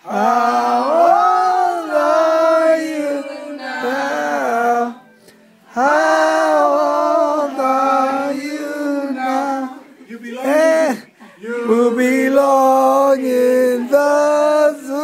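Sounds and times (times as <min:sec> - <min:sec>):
group of people singing: 0:00.0 - 0:15.0.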